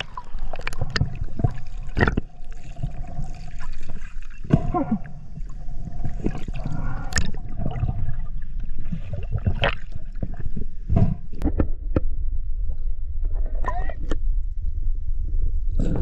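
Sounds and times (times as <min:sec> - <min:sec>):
gurgling bubbles: 0:00.0 - 0:11.4
underwater rumble: 0:00.0 - 0:16.0.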